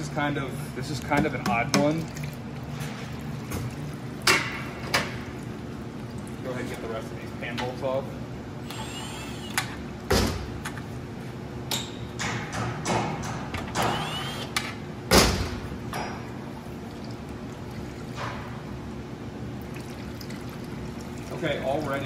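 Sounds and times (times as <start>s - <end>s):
impact driver bursts: 8.6s - 9.7s, 13.7s - 14.7s.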